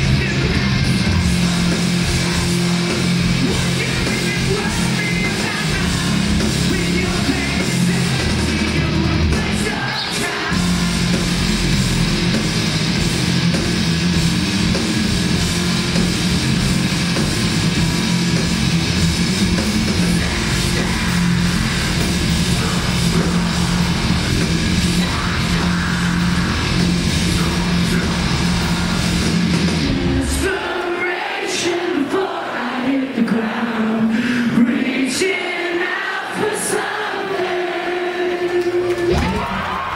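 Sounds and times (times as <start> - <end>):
singing vocals: 0.0 - 11.7, 19.8 - 39.9
bass: 0.0 - 30.5, 38.6 - 39.9
live rock band playing: 0.0 - 31.3
distorted electric guitars: 0.0 - 32.2
drums: 0.0 - 39.9.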